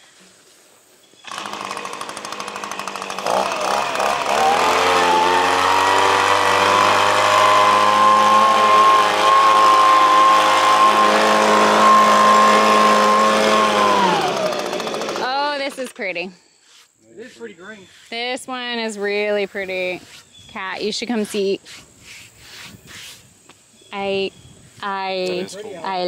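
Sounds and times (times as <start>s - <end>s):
leaf blower engine revving: 1.2s - 16.0s.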